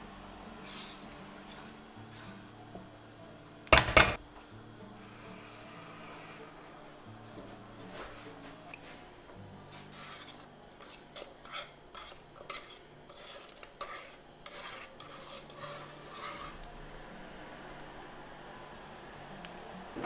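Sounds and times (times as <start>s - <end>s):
wire whisk scraping metal pot: 0.6s - 2.6s, 9.6s - 16.8s.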